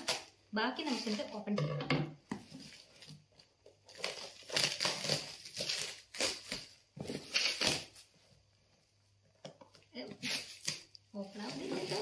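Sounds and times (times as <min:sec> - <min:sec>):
plastic stretch wrap crinkling: 0:00.0 - 0:01.5, 0:02.5 - 0:08.2, 0:09.8 - 0:12.0.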